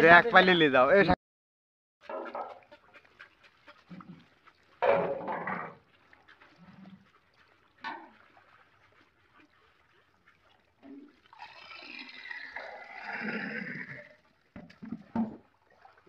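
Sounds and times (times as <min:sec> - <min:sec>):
water splashing: 0:02.0 - 0:16.0.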